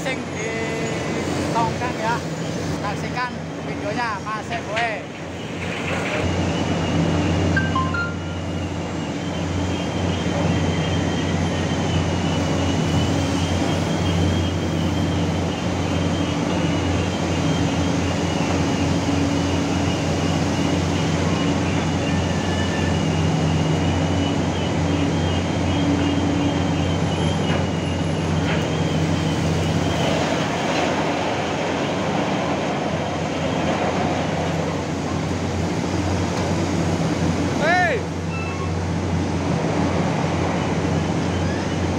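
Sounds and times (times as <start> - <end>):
heavy diesel machinery droning: 0.0 - 3.5, 4.1 - 41.9
thin high whine: 6.2 - 14.6.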